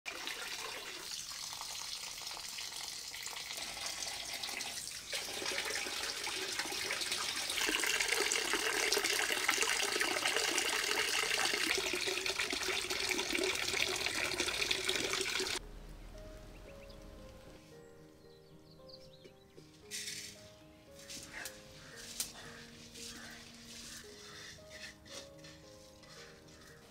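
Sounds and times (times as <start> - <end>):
water pouring into basin: 0.1 - 15.6.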